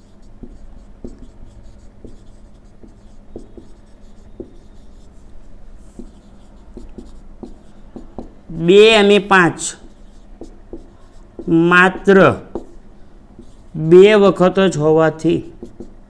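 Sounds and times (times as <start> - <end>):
marker tapping on whiteboard: 0.0 - 5.1, 5.8 - 8.4, 9.6 - 12.8, 13.4 - 13.6, 15.4 - 16.0
marker scratching on whiteboard: 0.0 - 16.0.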